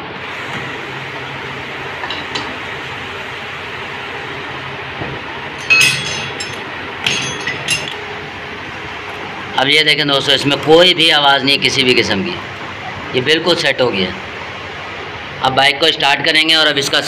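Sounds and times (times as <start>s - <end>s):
steady background noise: 0.0s - 17.0s
steel tools clinking on metal: 5.6s - 8.0s.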